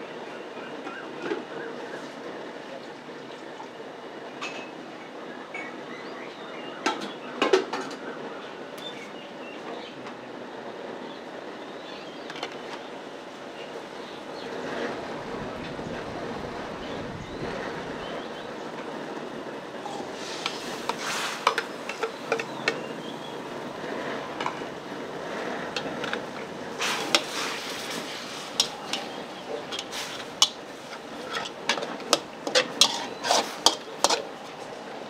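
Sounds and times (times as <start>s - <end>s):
metal utensils clinking on dishes: 19.8s - 22.8s, 25.7s - 34.4s.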